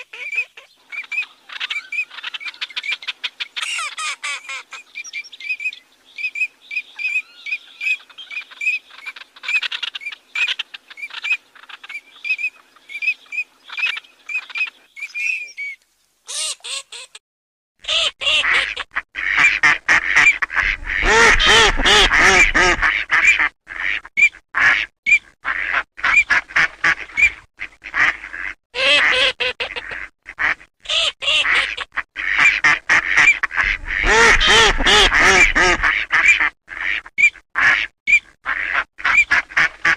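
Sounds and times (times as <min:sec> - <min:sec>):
duck high piping calls: 0:17.9 - 0:39.9
nasal quacking calls: 0:17.9 - 0:39.9.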